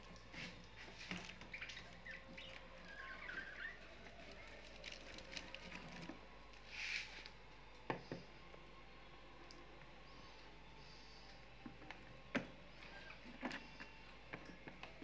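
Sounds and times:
bird twittering: 0:01.5 - 0:03.8.

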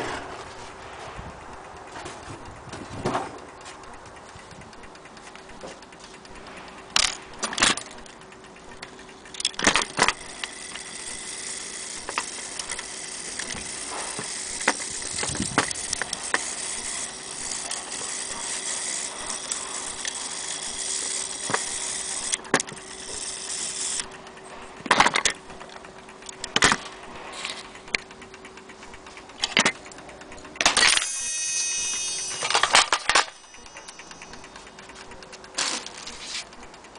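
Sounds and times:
faint steady hum: 0:00.0 - 0:36.9
clock parts clinking and knocking: 0:06.9 - 0:24.0, 0:24.8 - 0:28.1, 0:28.7 - 0:36.7
metallic ringing clatter: 0:24.7 - 0:36.6.

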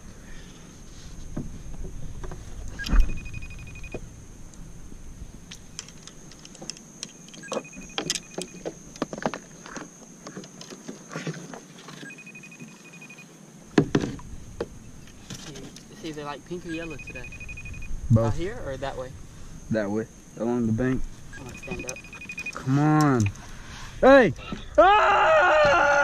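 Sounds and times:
phone ringing tone: 0:02.8 - 0:04.0, 0:07.4 - 0:08.7, 0:12.0 - 0:13.3, 0:16.7 - 0:17.9, 0:21.3 - 0:22.8.

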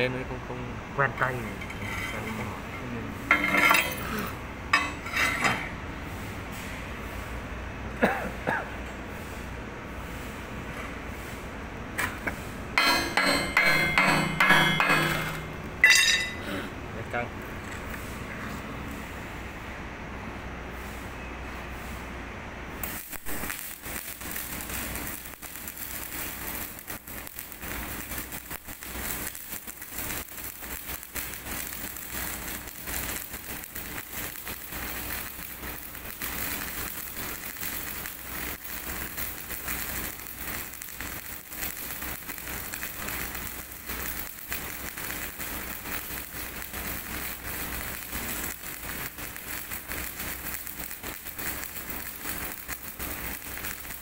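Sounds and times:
welding arc crackling: 0:12.1 - 0:18.2, 0:22.7 - 0:54.0.

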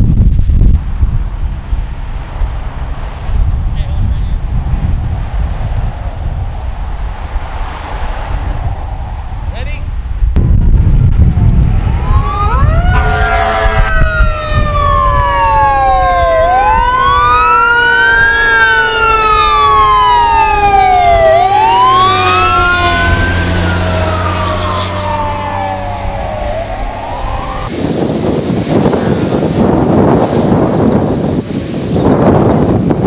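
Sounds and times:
vehicle engine low rumble: 0:00.0 - 0:33.0
emergency sirens wailing: 0:10.4 - 0:30.7.

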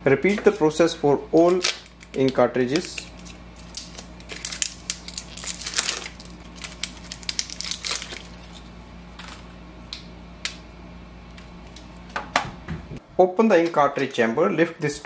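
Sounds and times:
plastic packaging crinkling: 0:01.4 - 0:09.5.

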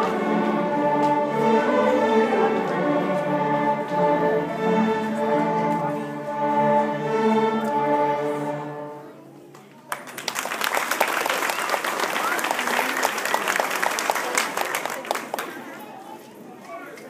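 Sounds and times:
string orchestra held chord: 0:00.0 - 0:09.2
audience applause: 0:09.9 - 0:15.8.

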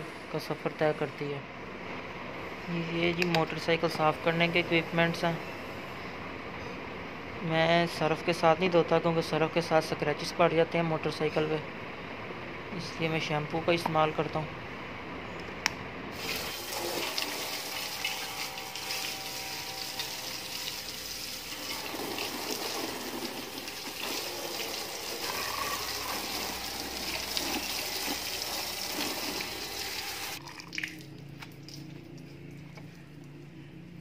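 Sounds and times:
water splashing over a motorcycle: 0:20.5 - 0:29.4.

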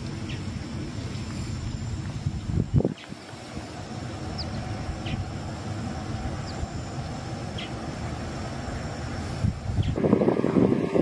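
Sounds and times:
small birds chirping: 0:00.2 - 0:05.4, 0:06.2 - 0:07.9, 0:09.2 - 0:10.0.

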